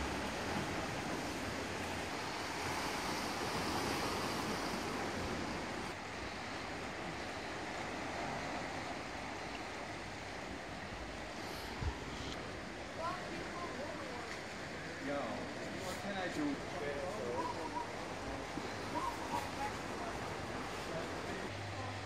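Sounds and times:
waves washing over rocks: 0.0 - 21.6.

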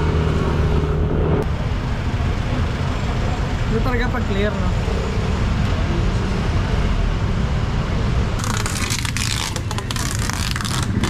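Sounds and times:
street traffic rumble: 0.0 - 11.0
plastic wrapping crinkling: 8.4 - 11.0.

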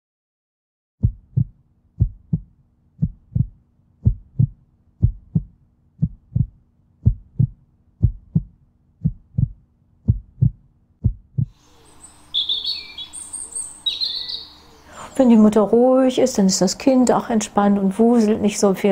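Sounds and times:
heartbeat thumps: 1.0 - 11.6
birds chirping: 11.4 - 15.6.

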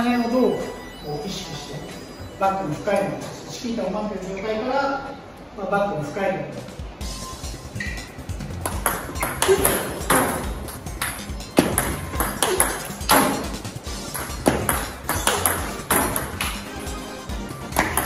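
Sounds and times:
background music: 0.0 - 18.0
table tennis ball clicking: 8.6 - 13.5, 14.1 - 16.7.

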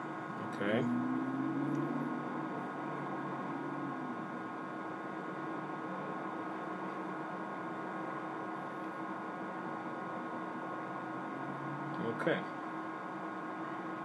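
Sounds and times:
electrical hum: 0.0 - 14.0.

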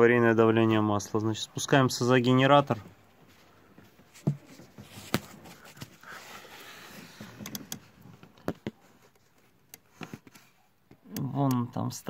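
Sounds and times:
soft rustle: 2.6 - 7.4.

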